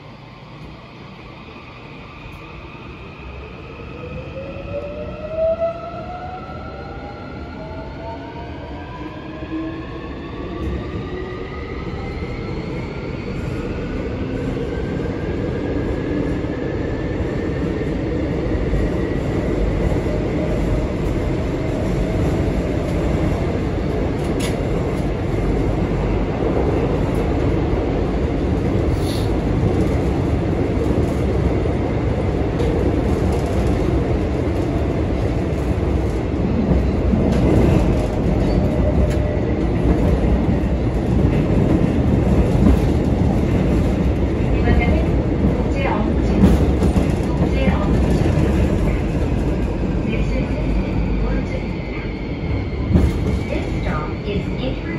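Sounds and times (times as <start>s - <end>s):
wheels rumbling on rails: 17.2s - 54.9s.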